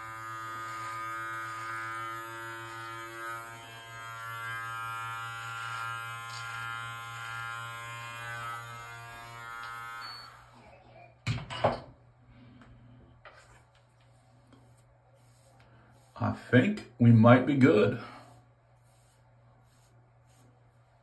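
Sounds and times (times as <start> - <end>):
beard trimmer buzzing: 0.0 - 10.6.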